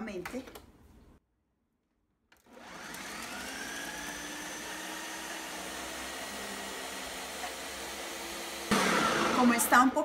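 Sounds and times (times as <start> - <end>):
blender motor whining: 2.4 - 9.9
blender chopping vegetables: 2.4 - 10.0.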